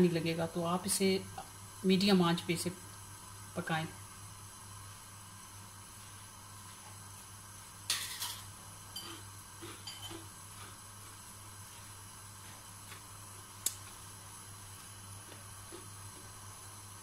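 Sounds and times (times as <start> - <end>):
dishes and metal utensils clinking: 7.9 - 10.3.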